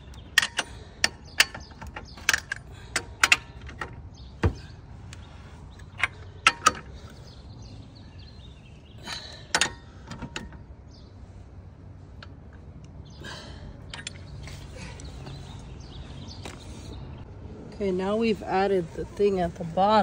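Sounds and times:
lug wrench metallic clicks: 0.0s - 7.2s, 9.0s - 10.6s, 13.9s - 14.4s.

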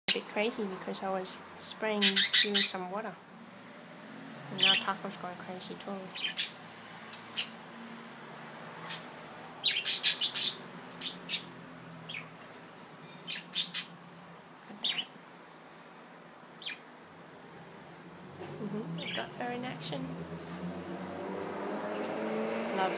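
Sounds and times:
budgerigars chirping: 2.0s - 2.8s, 4.6s - 5.0s, 6.1s - 7.6s, 8.8s - 12.4s, 13.0s - 14.0s, 14.7s - 15.1s, 16.6s - 16.9s, 19.0s - 19.4s.

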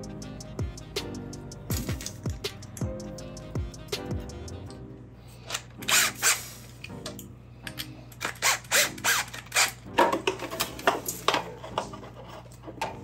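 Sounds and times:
plastic and metal parts handled: 7.7s - 13.0s.

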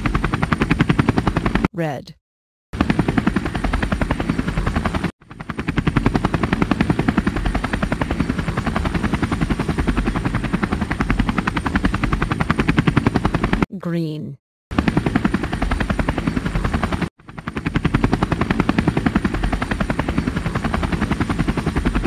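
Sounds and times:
helicopter rotor blades chopping: 0.0s - 2.0s, 2.7s - 13.7s, 14.7s - 22.0s.

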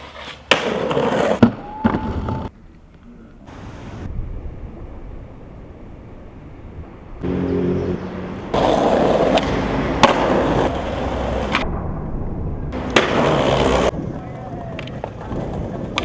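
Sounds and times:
skateboard popping and landing: 0.0s - 2.5s, 8.6s - 11.6s, 12.8s - 14.0s, 14.6s - 16.0s
skateboard wheels rolling on pavement: 0.0s - 2.5s, 3.5s - 11.6s, 12.7s - 16.0s.

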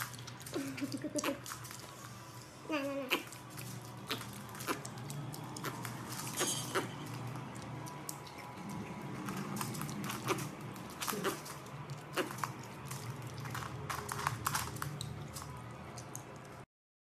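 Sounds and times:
piglet mouth smacking and biting: 3.1s - 16.4s.

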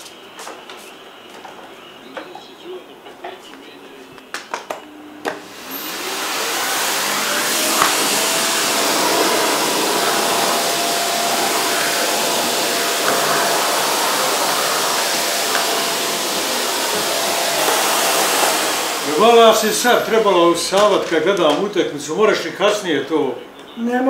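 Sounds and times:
vacuum cleaner motor: 5.3s - 21.6s.

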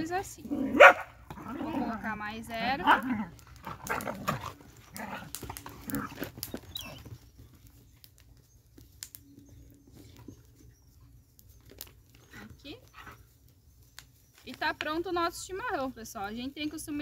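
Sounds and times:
small dogs snarling and yelping: 0.4s - 7.5s, 9.9s - 13.6s.

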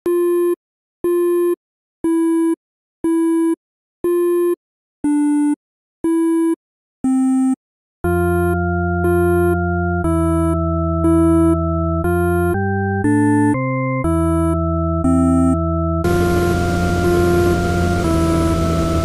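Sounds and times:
synthesizer chords with bass: 8.1s - 19.0s
electronic beep tone pulsing: 15.3s - 19.0s.

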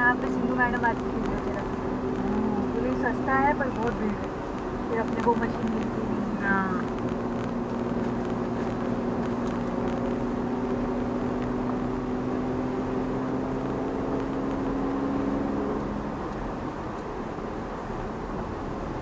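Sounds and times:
car engine hum: 0.0s - 19.0s
road noise inside car cabin: 0.0s - 19.0s.

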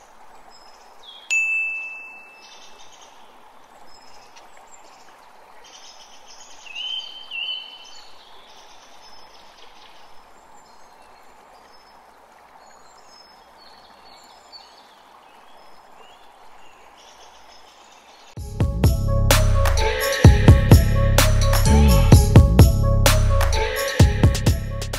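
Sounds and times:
running water: 0.0s - 18.4s
loud music: 18.4s - 24.9s.

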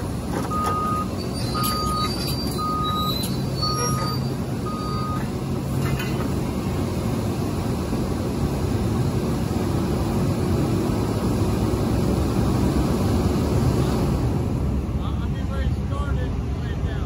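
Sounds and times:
excavator diesel engines rumbling: 0.0s - 17.0s.

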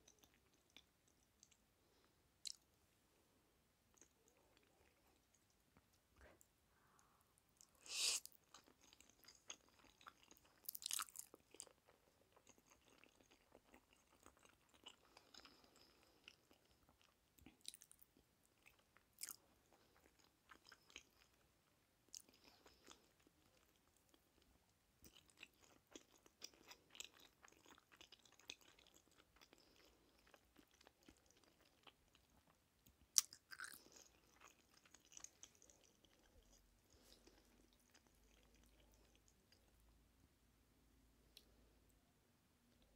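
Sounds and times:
chewing with wet mouth clicks: 8.4s - 21.4s, 22.1s - 39.8s.

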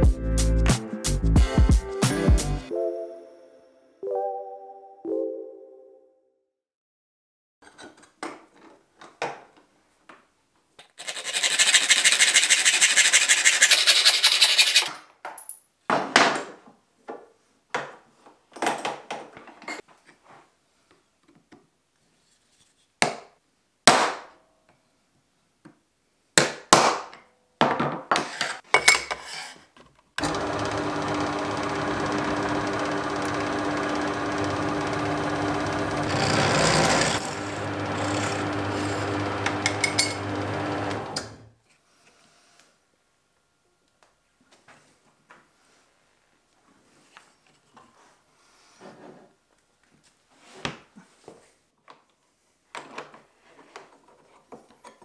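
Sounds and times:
file rasping on metal: 11.0s - 14.9s, 36.1s - 39.0s
drill press motor running: 30.2s - 41.5s.

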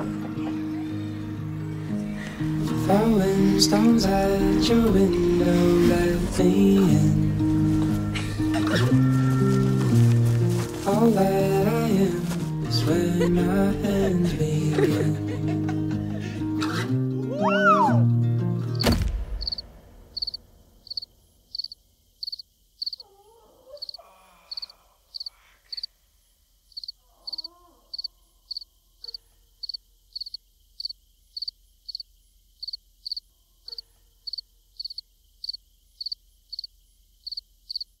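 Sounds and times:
music: 0.0s - 19.7s
cricket chirping: 18.7s - 38.0s.

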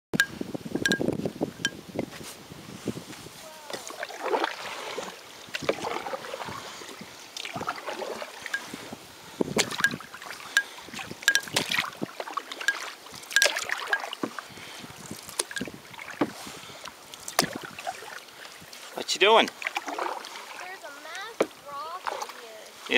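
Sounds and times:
water dripping: 0.2s - 1.8s, 9.6s - 22.8s
paddle splashing in water: 3.2s - 22.9s.

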